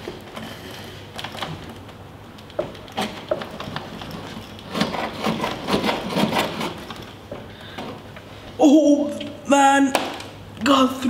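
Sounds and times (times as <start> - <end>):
knife hacking and scraping plastic: 2.5 - 7.2.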